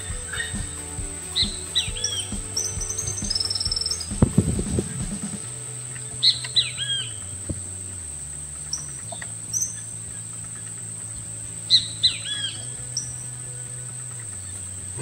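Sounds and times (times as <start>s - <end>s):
songbird whistled notes: 1.4s - 4.4s.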